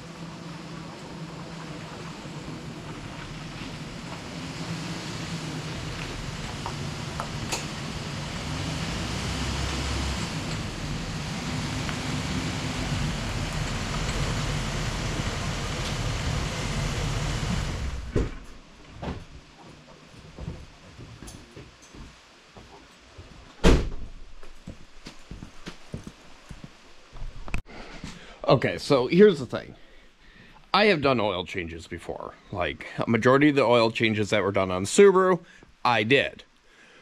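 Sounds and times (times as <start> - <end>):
pickup truck engine driving: 0.0 - 18.6
road and wind noise: 0.0 - 19.3.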